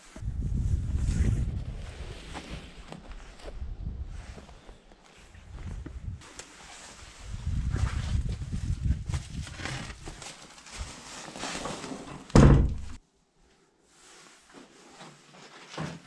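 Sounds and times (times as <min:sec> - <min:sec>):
loud thump: 0:12.4 - 0:13.0.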